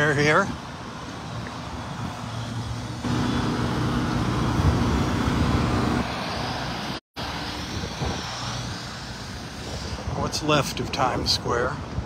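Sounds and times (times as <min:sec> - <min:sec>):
wind noise on microphone: 0:00.3 - 0:12.0
engine drone: 0:02.3 - 0:10.0.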